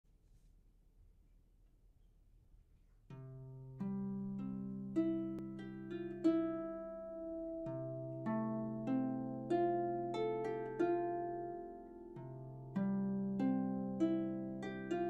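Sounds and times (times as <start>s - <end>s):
plucked string melody: 3.1s - 15.0s.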